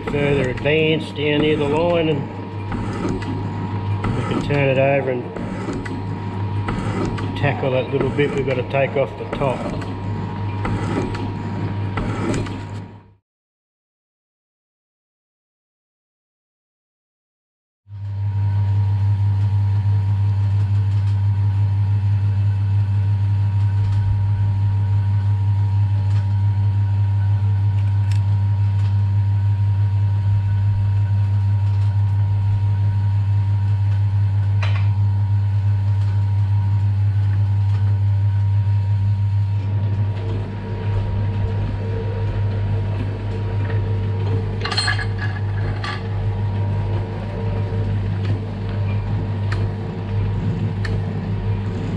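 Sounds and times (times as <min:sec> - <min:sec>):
metal shaper cutting: 0:00.0 - 0:12.9.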